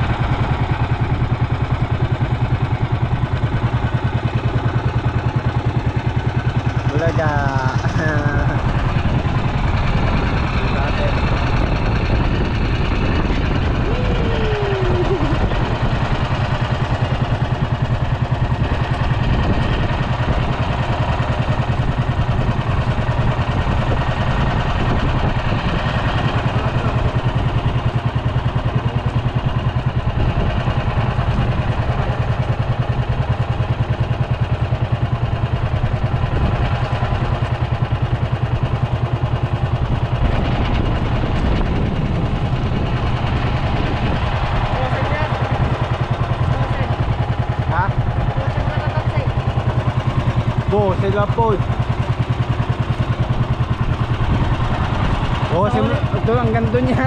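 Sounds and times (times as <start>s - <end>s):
boat engine droning: 0.0s - 57.0s.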